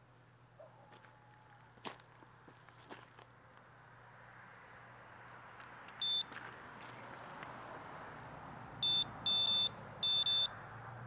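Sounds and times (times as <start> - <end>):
bite alarm beeping: 6.0 - 6.3, 8.8 - 10.5.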